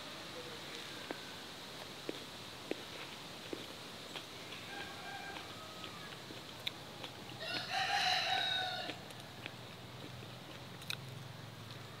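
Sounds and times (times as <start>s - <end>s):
rooster crowing: 4.5s - 6.2s, 7.4s - 9.5s.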